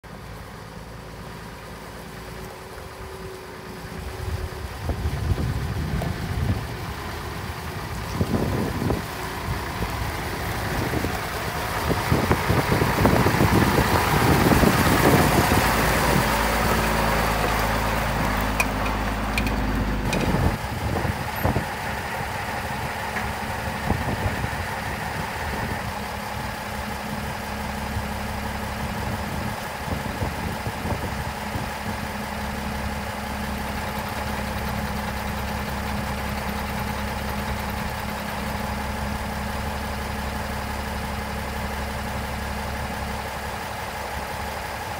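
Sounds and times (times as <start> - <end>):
diesel engine idling: 0.0 - 44.9
wind noise on microphone: 4.0 - 16.8, 20.0 - 26.5, 28.8 - 32.0.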